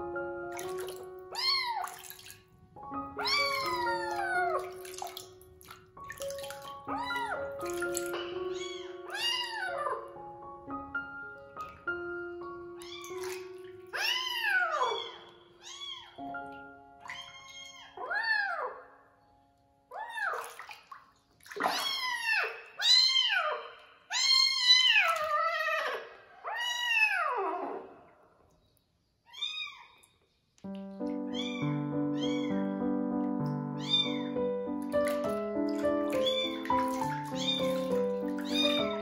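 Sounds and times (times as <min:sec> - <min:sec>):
background music: 0:00.0 - 0:20.3, 0:30.7 - 0:39.0
kitten meowing: 0:01.3 - 0:02.0, 0:03.2 - 0:04.7, 0:06.9 - 0:07.6, 0:08.4 - 0:10.1, 0:12.8 - 0:16.3, 0:17.1 - 0:18.7, 0:21.7 - 0:27.7, 0:31.3 - 0:32.7, 0:33.8 - 0:34.4, 0:36.1 - 0:39.0.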